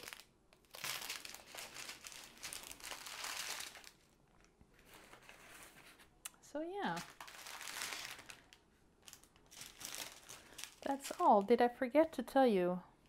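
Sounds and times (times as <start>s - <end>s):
plastic bags crinkling: 0.0s - 5.3s, 6.8s - 11.5s.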